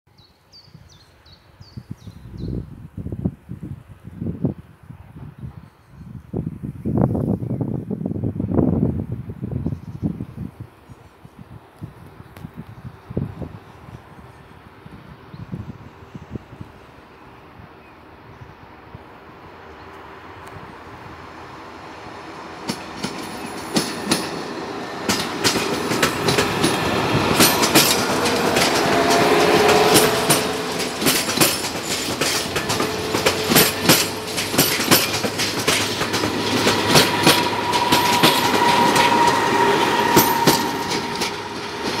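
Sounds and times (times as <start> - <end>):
railcar steady whine: 1.4 - 42.0
train wheels clattering over rail joints: 22.6 - 42.0.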